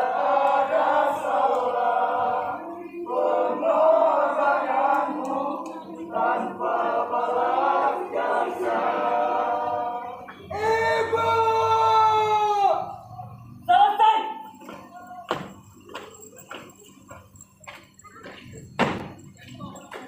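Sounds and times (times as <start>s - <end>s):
group singing slow song: 0.0s - 11.8s.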